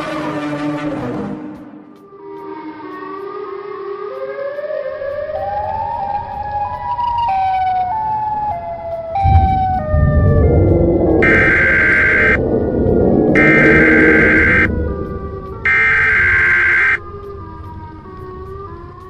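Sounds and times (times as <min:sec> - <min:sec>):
siren wailing: 0:02.5 - 0:19.0
rumbling crackling noise: 0:09.2 - 0:19.0
harsh static burst: 0:11.2 - 0:12.4, 0:13.4 - 0:14.7, 0:15.7 - 0:17.0.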